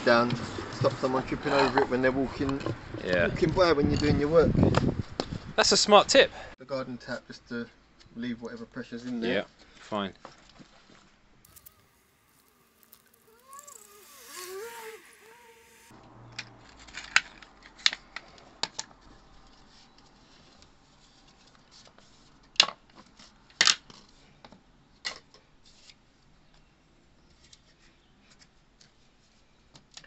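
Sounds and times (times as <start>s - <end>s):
wavering pitched sound: 11.5s - 15.9s.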